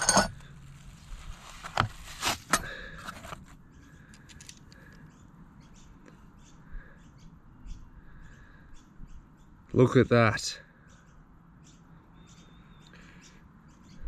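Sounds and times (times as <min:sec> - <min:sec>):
cardboard and plastic rustling: 0:00.8 - 0:03.6
faint bird chirps: 0:03.6 - 0:10.0, 0:10.6 - 0:14.0.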